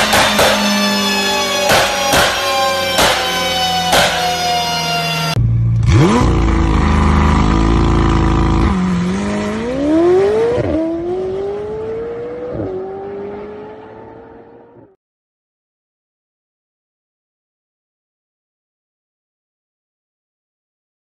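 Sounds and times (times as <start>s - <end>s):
sports car engine revving and accelerating: 5.8s - 15.0s.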